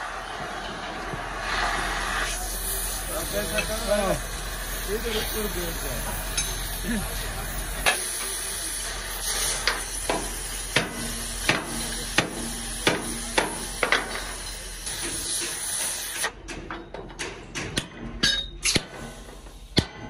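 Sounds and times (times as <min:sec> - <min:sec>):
torch hissing: 0:01.2 - 0:16.3.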